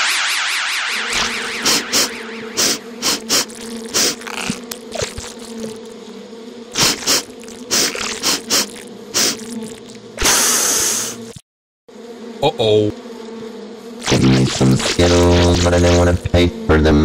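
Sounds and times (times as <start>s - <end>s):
cartoon bee buzz: 0.0s - 17.0s
short loud hissing bursts: 1.5s - 4.3s, 6.8s - 9.5s, 10.2s - 11.3s.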